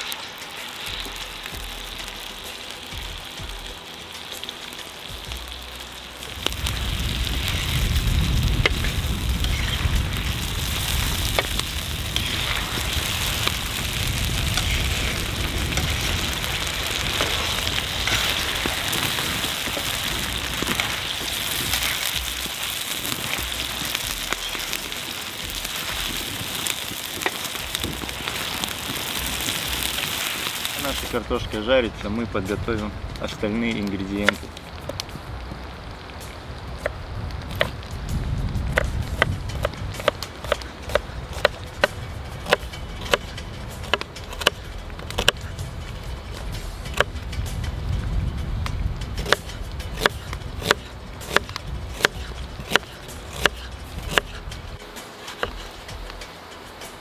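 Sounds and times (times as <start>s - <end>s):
potatoes sizzling in hot oil: 0.0s - 31.8s.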